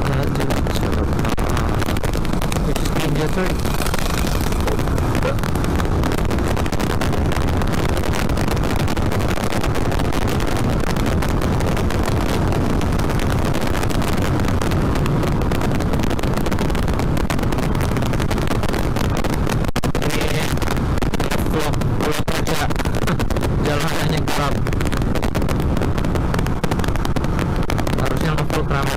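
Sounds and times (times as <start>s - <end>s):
motorcycle engine running: 0.0s - 19.6s, 24.6s - 28.0s
wind rushing over microphone: 0.0s - 28.9s.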